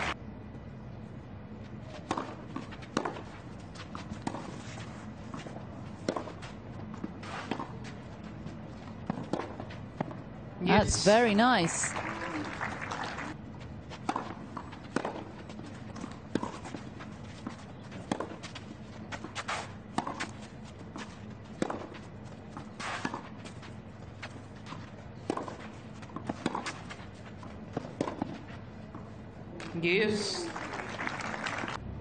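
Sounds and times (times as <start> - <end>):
players' footsteps: 1.6 - 31.8
tennis ball struck by rackets: 6.0 - 6.4, 14.1 - 15.3, 25.2 - 27.0, 27.8 - 28.4
crowd applause: 11.4 - 13.4, 30.2 - 31.8.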